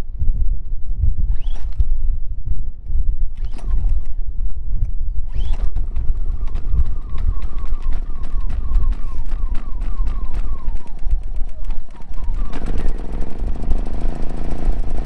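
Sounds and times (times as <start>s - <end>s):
generator engine running rough: 11.9s - 15.0s.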